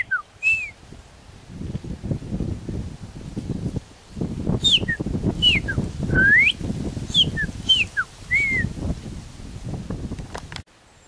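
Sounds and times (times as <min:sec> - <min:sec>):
blackbird whistled song: 0:00.0 - 0:00.8, 0:04.5 - 0:08.7.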